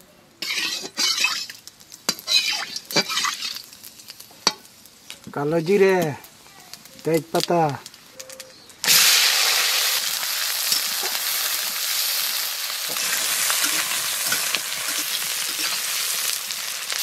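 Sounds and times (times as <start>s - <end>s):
onions and tomatoes sizzling in oil: 0.0s - 17.0s
spatula stirring: 0.4s - 3.7s, 12.9s - 16.3s.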